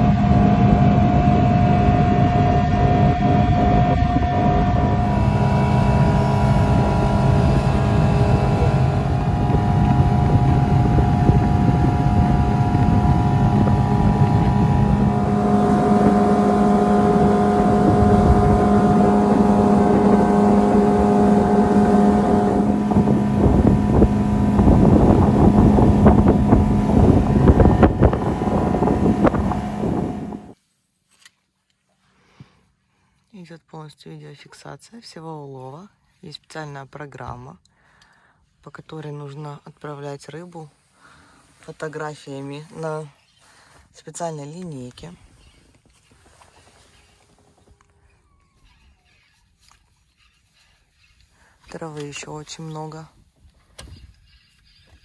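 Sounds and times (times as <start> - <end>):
outboard motor running: 0.0 - 30.6
wind on microphone: 0.0 - 30.6.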